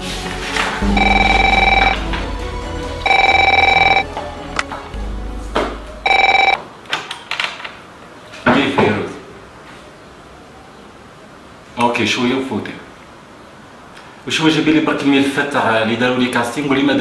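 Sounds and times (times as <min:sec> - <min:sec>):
electronic telephone ringing: 0:00.8 - 0:02.1, 0:03.0 - 0:04.1, 0:06.0 - 0:06.6.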